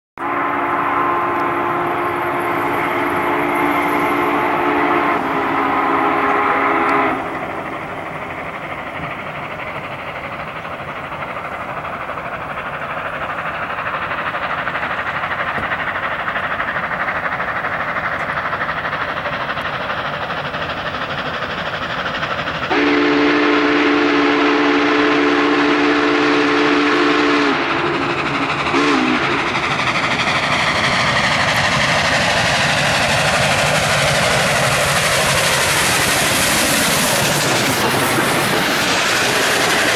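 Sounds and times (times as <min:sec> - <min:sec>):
steam whistle blasts: 0:00.2 - 0:07.4, 0:22.7 - 0:28.1, 0:28.7 - 0:29.4
steam locomotive running: 0:00.2 - 0:39.9.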